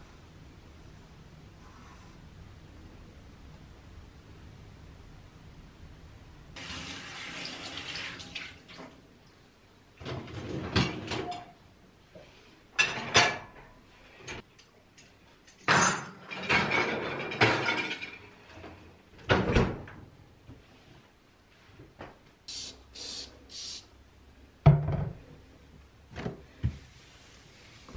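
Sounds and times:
dishes and cutlery clinking: 12.8s - 13.7s, 14.3s - 18.3s.

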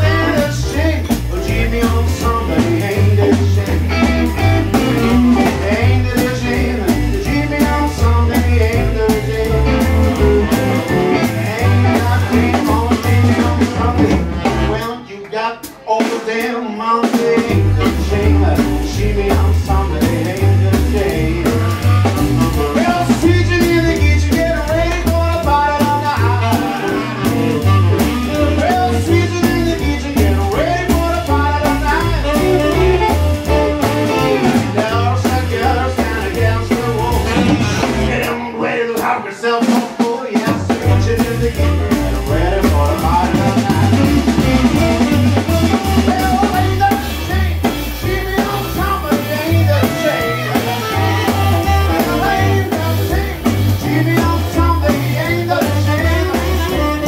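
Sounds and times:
live swing band with male singer: 0.0s - 57.0s.

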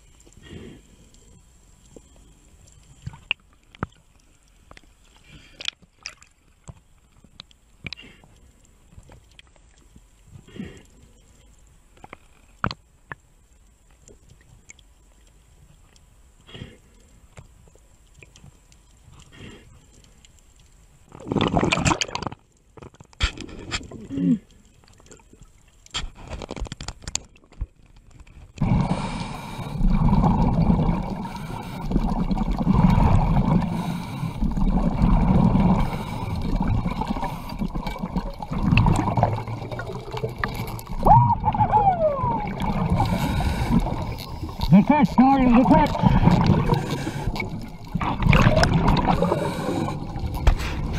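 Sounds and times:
scuba diver breathing underwater: 0.3s - 1.4s, 28.6s - 50.9s
bubbles gurgling: 21.2s - 22.3s, 28.6s - 50.9s
scrapes and clicks: 25.8s - 28.7s, 35.6s - 41.1s, 42.6s - 50.9s
rush of water: 28.6s - 50.9s.

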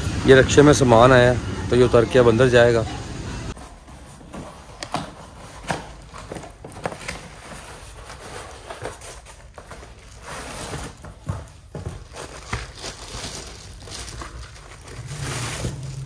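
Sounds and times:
plastic wrapping crinkling: 5.2s - 16.0s.

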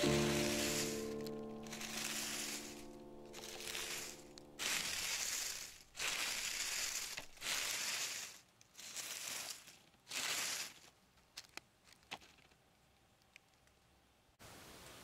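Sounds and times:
dry leaves crunching and rustling: 0.0s - 11.6s.

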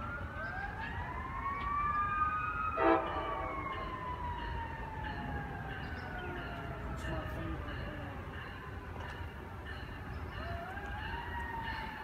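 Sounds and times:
loud pitched siren blast: 0.0s - 6.2s
siren wailing: 0.0s - 7.0s, 10.4s - 12.0s.

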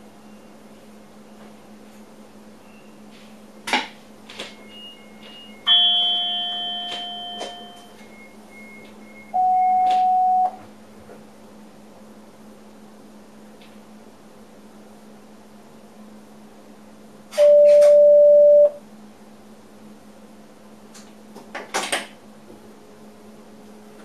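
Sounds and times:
electrical hum: 0.0s - 24.0s
short high beeps: 4.8s - 10.6s, 17.4s - 18.8s
loud ringing chime: 4.9s - 8.4s.

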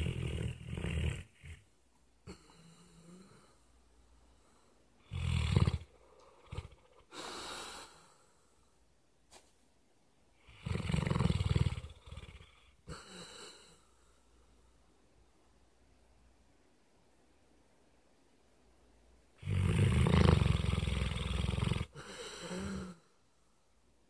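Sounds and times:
dog snoring: 0.0s - 1.6s, 5.0s - 7.7s, 10.4s - 13.6s, 19.4s - 23.0s.

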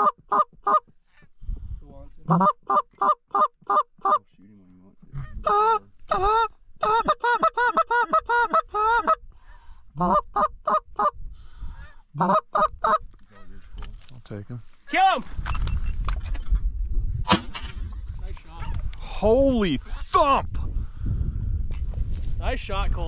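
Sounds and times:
goose call honks and clucks: 0.0s - 1.3s, 2.3s - 4.3s, 5.1s - 9.2s, 10.0s - 11.2s, 11.8s - 13.5s.

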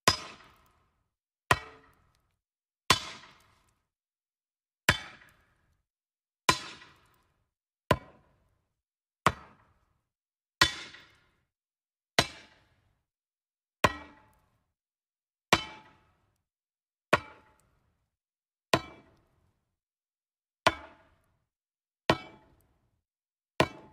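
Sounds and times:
axe chopping wood: 0.1s - 0.6s, 2.9s - 3.6s, 4.9s - 5.4s, 6.5s - 7.2s, 9.3s - 9.6s, 10.6s - 11.2s, 13.8s - 14.3s, 17.2s - 17.6s, 20.7s - 21.0s, 23.6s - 23.9s.

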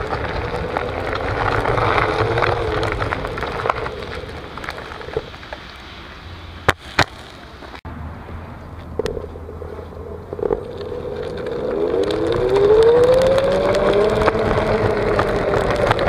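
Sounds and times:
tyre rumble on gritty paving: 0.0s - 7.8s, 8.7s - 16.0s.

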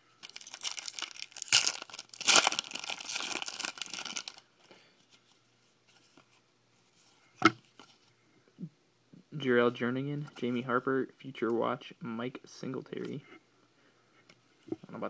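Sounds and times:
foil ripping: 0.2s - 4.4s
foil wrapper crinkling: 0.2s - 4.4s.

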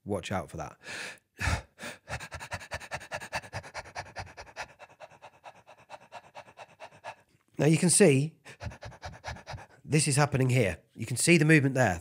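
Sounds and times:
man panting rapidly: 0.8s - 9.9s.

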